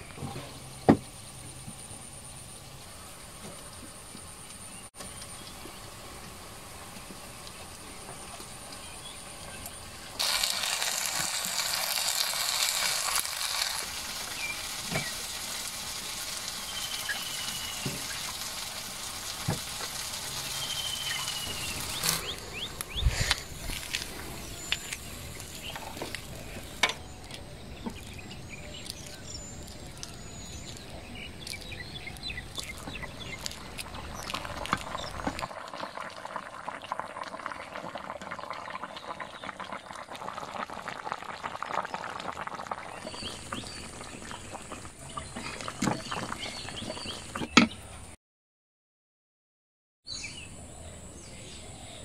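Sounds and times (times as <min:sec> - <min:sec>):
curry bubbling in a pot: 0:05.0 - 0:26.8, 0:27.6 - 0:47.5
birds chirping: 0:14.1 - 0:36.1, 0:42.8 - 0:48.1.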